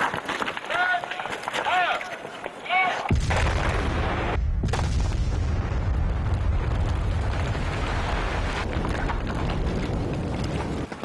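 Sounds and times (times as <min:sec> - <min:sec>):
explosion blast: 0:03.1 - 0:10.5
deep rumble of falling rock: 0:03.1 - 0:11.0.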